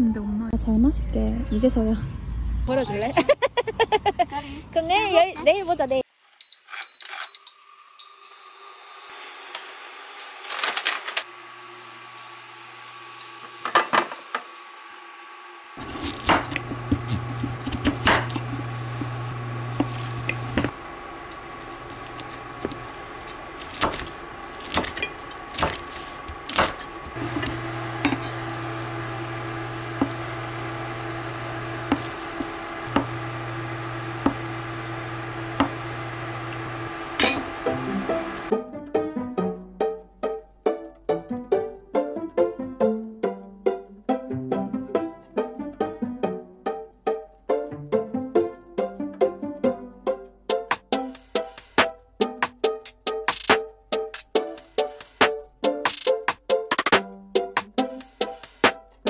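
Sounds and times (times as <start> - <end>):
low electric hum: 14.6 - 38.5
knife chopping on wooden board: 16.0 - 18.6, 23.7 - 28.4, 31.8 - 33.2.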